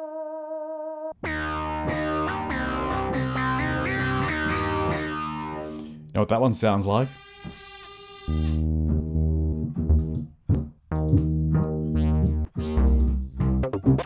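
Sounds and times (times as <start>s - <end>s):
deep synth bass notes: 1.2s - 6.1s, 8.5s - 14.0s.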